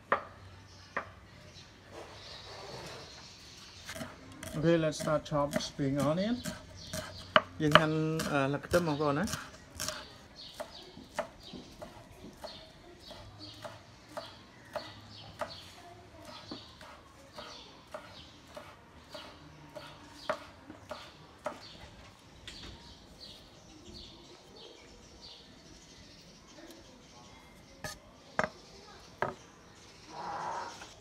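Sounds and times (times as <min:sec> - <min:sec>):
knife chopping on wooden board: 0:03.9 - 0:15.6, 0:16.2 - 0:21.7.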